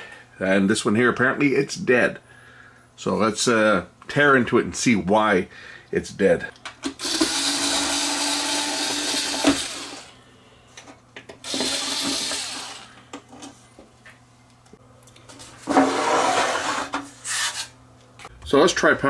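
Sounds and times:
power screwdriver whirring: 0:07.0 - 0:10.1, 0:11.4 - 0:12.9.

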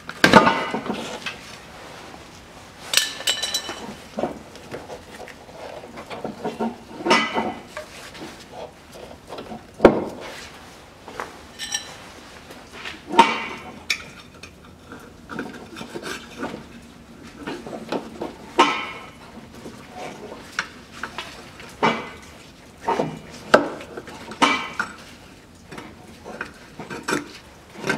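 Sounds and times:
metal clanking: 0:02.9 - 0:04.0.

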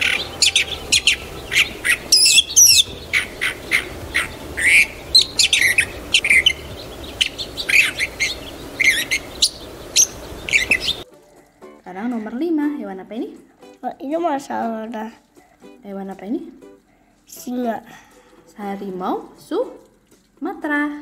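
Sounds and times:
bird calling: 0:00.0 - 0:11.0.

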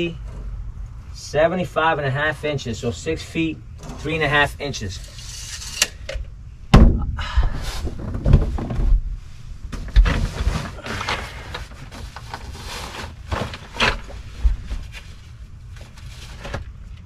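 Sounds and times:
knocks and thumps: 0:06.7 - 0:09.1
fabric rustling: 0:07.7 - 0:16.7.

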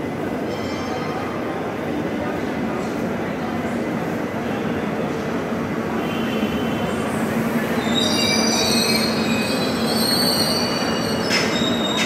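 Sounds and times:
train wheels rumbling on rails: 0:06.8 - 0:12.0
wheel squeal: 0:07.8 - 0:12.0.

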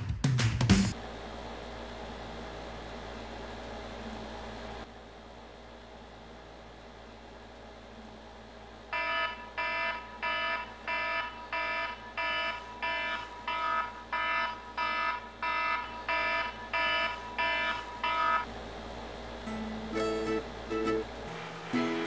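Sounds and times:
smartphone alarm ringing: 0:09.0 - 0:18.5.

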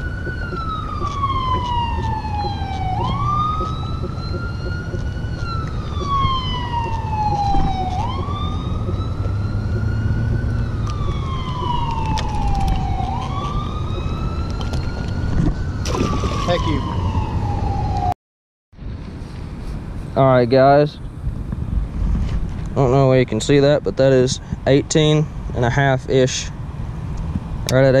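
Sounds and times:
siren wailing: 0:00.0 - 0:18.2.

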